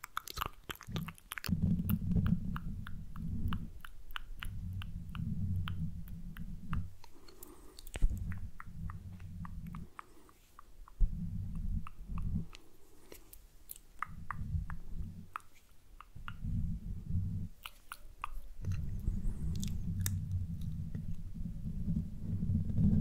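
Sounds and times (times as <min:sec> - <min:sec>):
fingers rubbing microphone rumble: 0:00.9 - 0:10.0, 0:11.0 - 0:12.7, 0:14.1 - 0:15.4, 0:16.2 - 0:17.6, 0:18.6 - 0:23.0.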